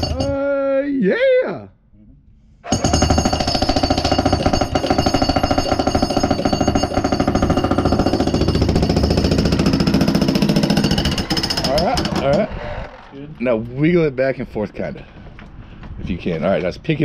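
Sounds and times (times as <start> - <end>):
jackhammer hammering concrete: 0.0 - 0.3, 2.7 - 13.1.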